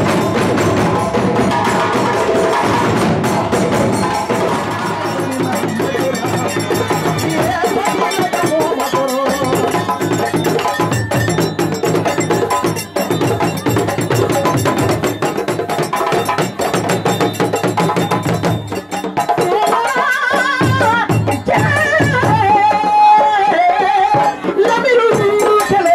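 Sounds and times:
drum ensemble playing dance rhythm: 0.0s - 25.9s
person singing: 3.6s - 10.7s, 19.3s - 25.9s.

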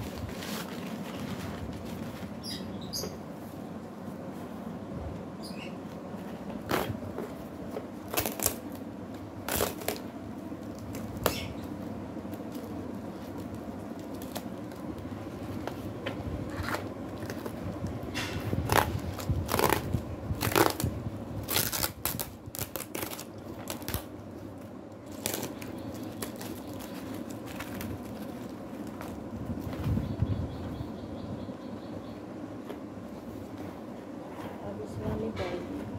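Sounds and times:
tape and cardboard ripping: 6.6s - 8.8s, 9.4s - 11.6s, 12.3s - 14.8s, 18.2s - 24.1s, 25.0s - 29.8s.

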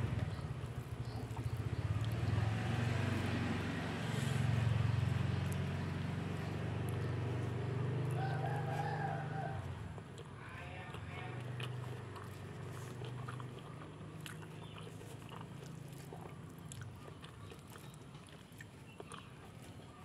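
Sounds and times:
rooster crowing: 7.9s - 9.8s.

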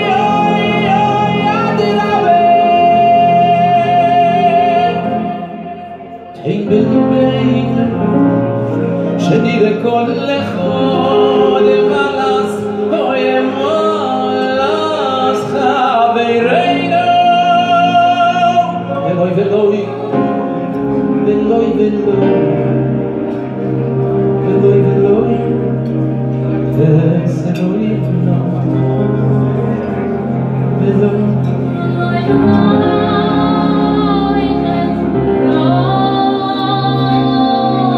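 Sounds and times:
male choir singing in harmony: 0.0s - 25.9s.

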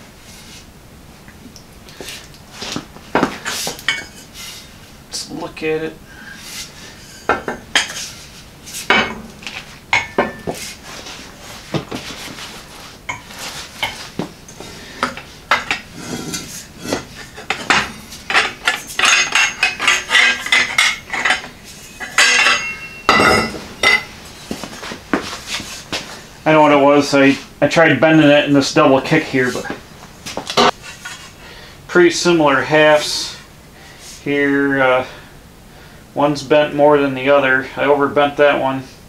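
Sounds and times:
metal conduit clanking in bender: 16.9s - 24.1s.

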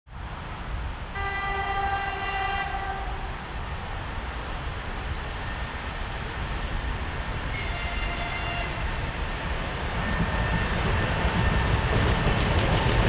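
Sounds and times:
locomotive horn blast: 1.2s - 3.3s, 7.5s - 8.8s.

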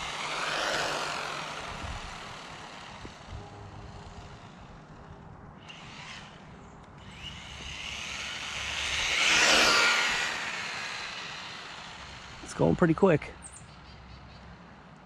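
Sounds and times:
toy truck motor whine: 0.0s - 12.6s.

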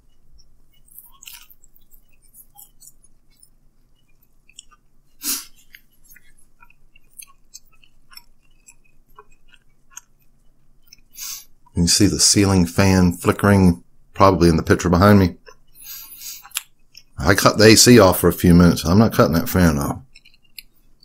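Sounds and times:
man chewing with wet mouth clicks: 0.0s - 11.8s, 15.4s - 17.2s, 20.0s - 21.0s.

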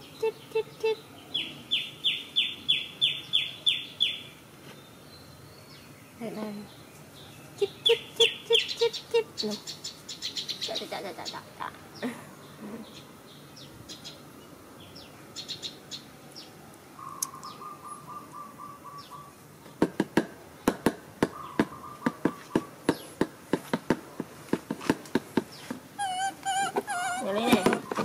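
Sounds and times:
small birds chirping: 0.0s - 19.9s, 20.5s - 23.3s, 25.2s - 28.0s
bird trill: 17.0s - 19.4s.

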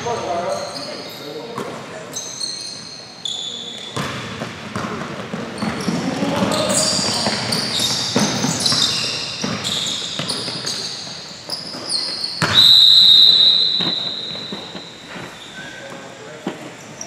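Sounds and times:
sneakers squeaking on gym floor: 0.0s - 17.0s
basketball bouncing: 4.0s - 10.8s, 12.4s - 12.7s
referee whistle blast: 12.4s - 14.9s.

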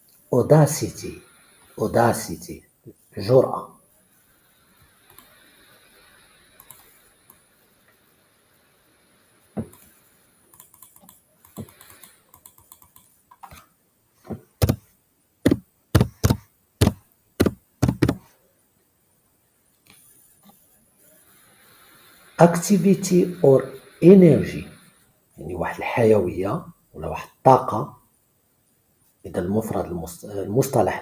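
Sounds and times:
keyboard typing clicks: 6.6s - 6.9s, 10.5s - 13.5s, 15.5s - 18.2s.

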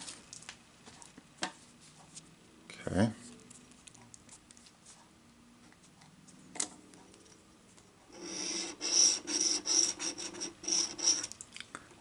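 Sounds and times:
scratch card scraping: 8.2s - 11.3s.

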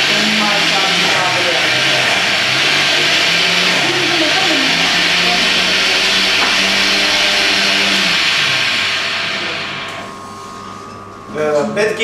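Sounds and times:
faint voices: 0.0s - 8.2s
loud steady hissing: 0.0s - 10.8s.

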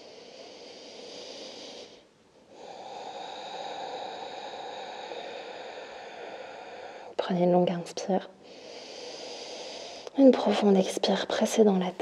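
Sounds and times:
woman breathing slowly: 0.0s - 7.2s, 8.3s - 10.2s.

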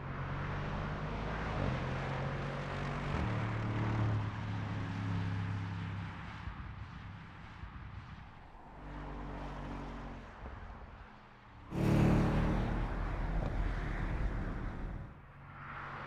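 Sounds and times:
car engine passing at speed: 11.6s - 16.0s.

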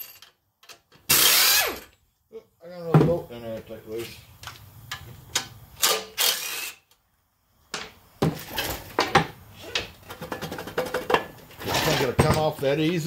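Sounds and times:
impact driver burst: 1.1s - 1.9s, 5.8s - 6.8s.

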